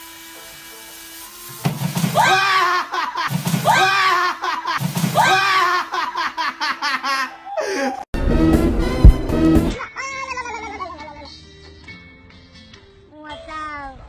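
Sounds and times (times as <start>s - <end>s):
recorded laugh: 2.5s - 8.0s.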